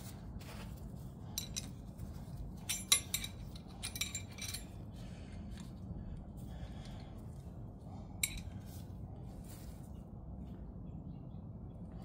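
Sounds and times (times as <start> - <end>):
steel tools clinking on metal: 1.4 - 1.9, 2.6 - 4.8, 8.2 - 8.6.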